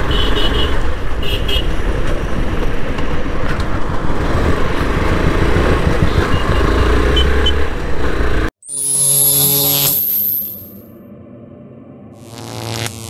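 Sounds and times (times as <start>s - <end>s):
passing cars and motorcycles: 0.0s - 8.5s
wind and road rumble: 0.0s - 8.5s
motorcycle engine running: 4.4s - 8.5s.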